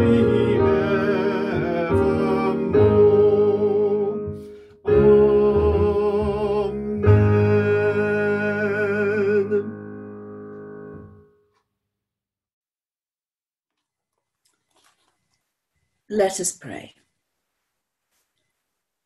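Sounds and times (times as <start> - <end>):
piano accompaniment: 0.0 - 11.6.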